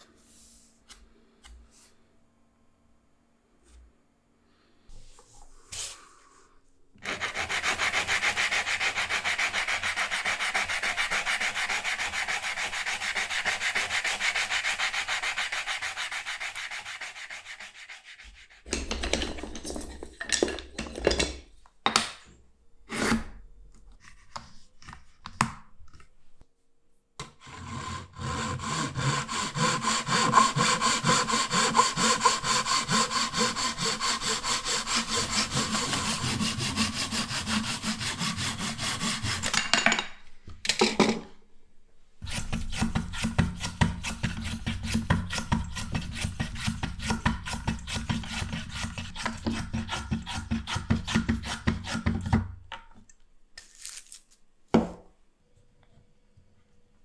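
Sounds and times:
hand saw cutting wood: 0:07.0 - 0:18.7, 0:27.2 - 0:39.5, 0:42.2 - 0:52.4
sanding sponge rubbing wood: 0:07.0 - 0:18.7, 0:28.1 - 0:39.4
wood and tools knocking: 0:18.7 - 0:22.2.

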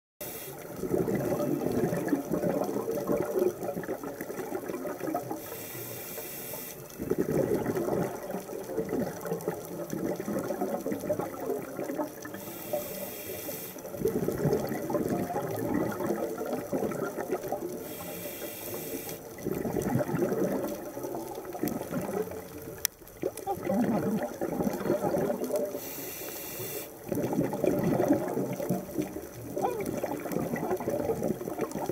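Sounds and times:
scuba regulator inhalation hiss: 0:00.2 - 0:00.7, 0:05.4 - 0:06.8, 0:12.3 - 0:14.0, 0:17.8 - 0:19.3, 0:25.7 - 0:27.1
exhaled bubbles rushing: 0:00.6 - 0:05.5, 0:06.9 - 0:12.5, 0:13.8 - 0:17.9, 0:19.2 - 0:25.9, 0:26.9 - 0:31.9.

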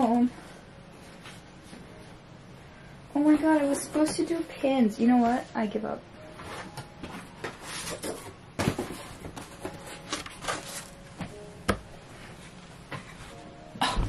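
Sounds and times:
paper package rustling: 0:06.5 - 0:11.2.

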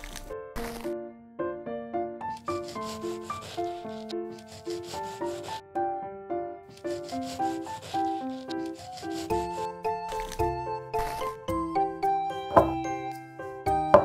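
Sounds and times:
background music simple melody: 0:00.0 - 0:14.0
knife sawing through cake: 0:02.4 - 0:05.6, 0:06.7 - 0:10.6.

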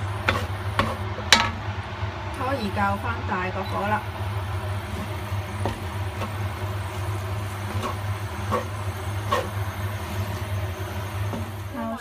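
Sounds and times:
spatula scraping and knocking pan: 0:00.0 - 0:01.6, 0:04.2 - 0:11.7
rice sizzling in a pan: 0:00.0 - 0:12.0.

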